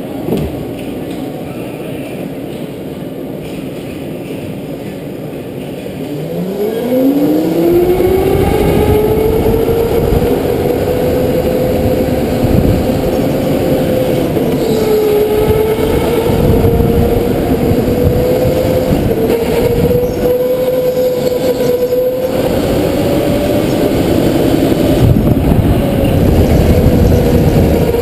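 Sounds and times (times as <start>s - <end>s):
noisy rush: 0.0s - 28.0s
go-kart engine whine: 6.0s - 28.0s.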